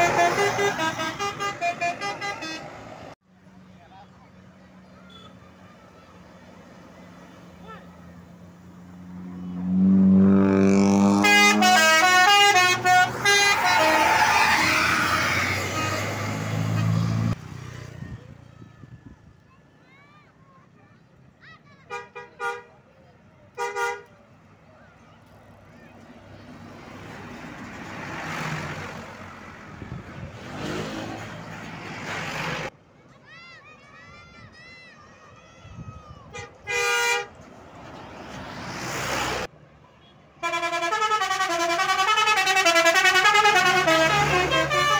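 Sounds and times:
musical horn playing tune: 0:00.0 - 0:02.8, 0:09.7 - 0:17.0, 0:40.4 - 0:44.9
bus passing rushing noise: 0:00.0 - 0:20.2, 0:23.9 - 0:44.9
road and air noise: 0:00.0 - 0:44.9
low bus horn note: 0:09.6 - 0:17.0, 0:40.4 - 0:44.9.

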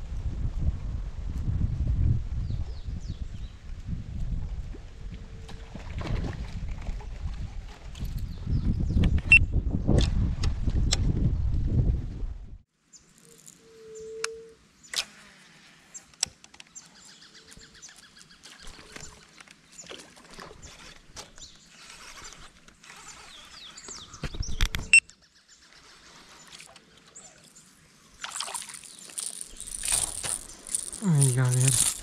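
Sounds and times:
faint water sounds: 0:16.9 - 0:23.9, 0:25.7 - 0:32.0
kayak gear clicks and knocks: 0:28.4 - 0:32.0.

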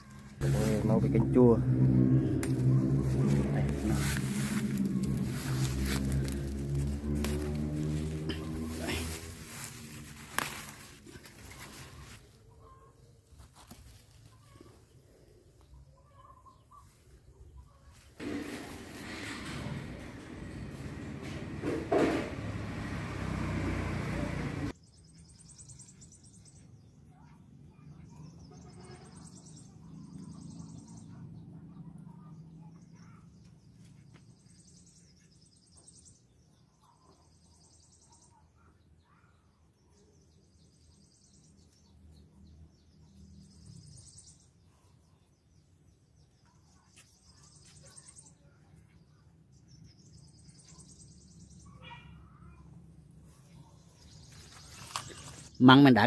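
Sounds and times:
low hum: 0:00.0 - 0:12.0.

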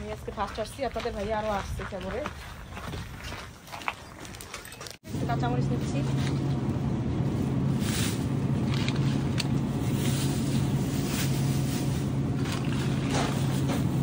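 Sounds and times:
low mechanical hum: 0:05.1 - 0:14.0.

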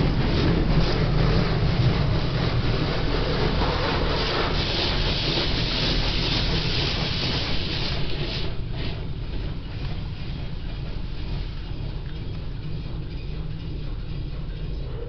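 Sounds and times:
high-pressure water spraying on car: 0:00.2 - 0:09.2.

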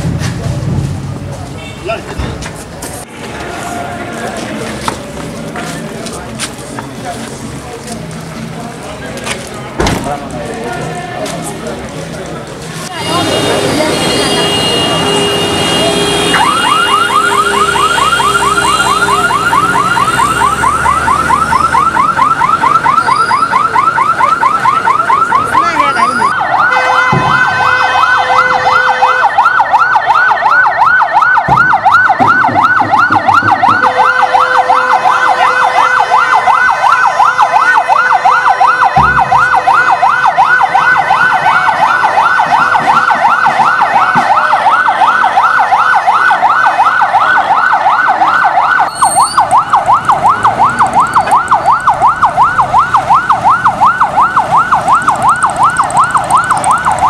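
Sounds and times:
electronic siren yelping: 0:13.0 - 0:57.0
low thumps: 0:31.4 - 0:33.9.

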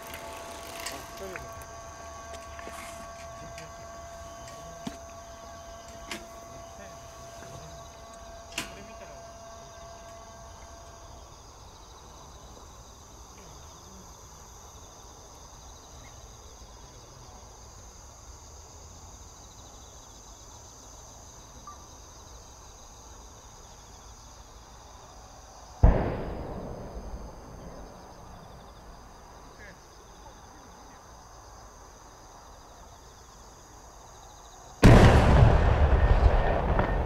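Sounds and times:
insects chirring: 0:00.0 - 0:37.0
firework mortar boom: 0:25.8 - 0:28.6, 0:34.8 - 0:37.0.

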